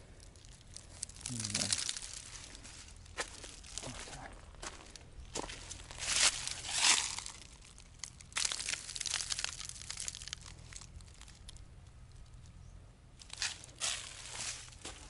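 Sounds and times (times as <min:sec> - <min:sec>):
footsteps crunching on stony path: 0:01.1 - 0:07.6, 0:13.2 - 0:15.0.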